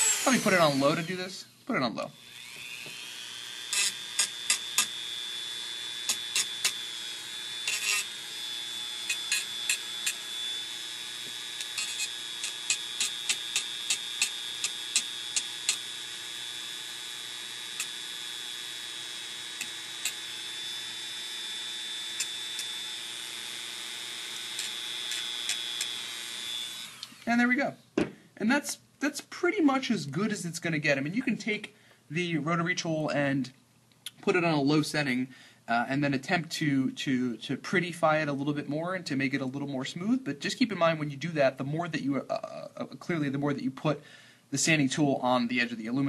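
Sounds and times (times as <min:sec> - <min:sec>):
rotary tool whining: 0:00.0 - 0:01.2, 0:02.2 - 0:27.3.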